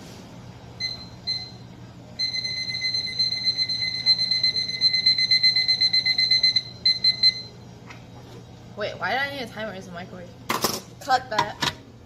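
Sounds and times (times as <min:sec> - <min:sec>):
kitchen timer alarm beep: 0:00.8 - 0:01.6, 0:02.2 - 0:07.6.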